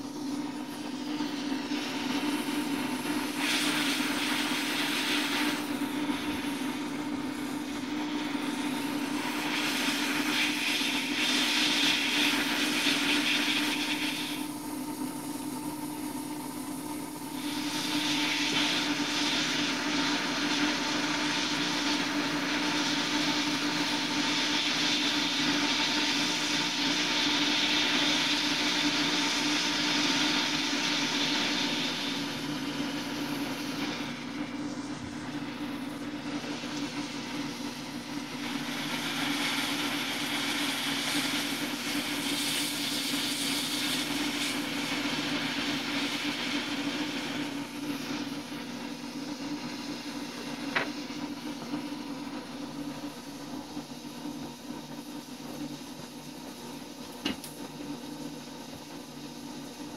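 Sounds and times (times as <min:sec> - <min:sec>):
rushing air hiss: 0:01.6 - 0:14.5.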